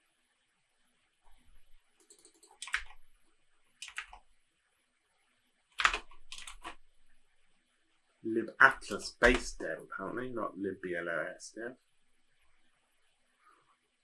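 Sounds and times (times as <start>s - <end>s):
keyboard keystrokes: 2.0s - 3.0s, 3.8s - 4.2s, 5.8s - 6.8s, 8.8s - 9.6s.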